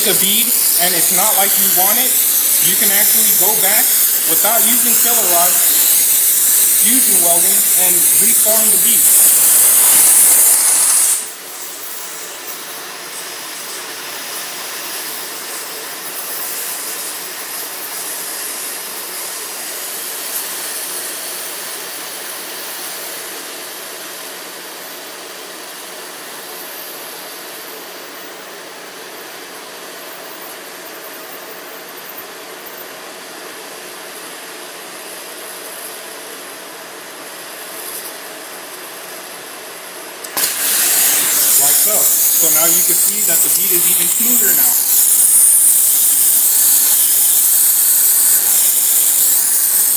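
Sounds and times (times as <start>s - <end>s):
plasma torch hissing: 0.0s - 24.6s, 37.3s - 39.5s, 40.1s - 49.9s.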